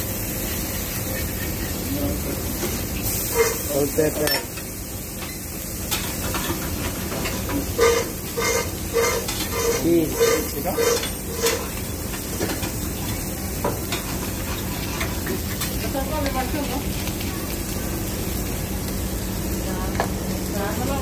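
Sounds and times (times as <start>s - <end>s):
patties sizzling on griddle: 0.0s - 21.0s.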